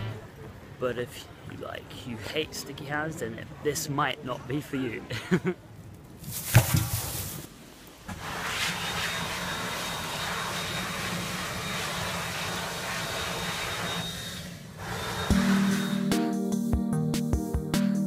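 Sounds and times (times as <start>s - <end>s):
plastic bag rustling: 6.2s - 7.5s.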